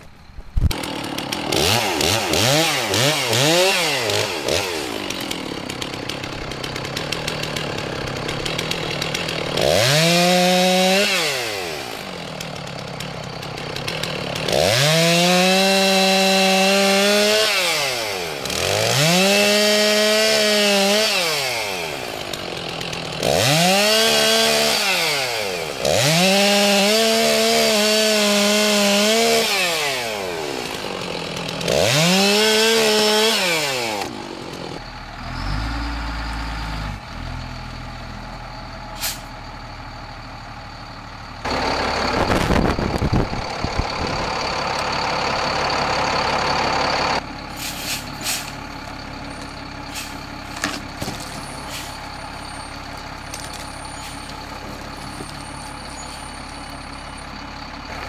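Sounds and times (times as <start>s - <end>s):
truck engine rumble: 0.0s - 58.0s
chainsaw cutting log: 0.6s - 34.8s, 49.3s - 56.4s
chainsaw idling: 0.6s - 35.3s, 39.5s - 58.0s.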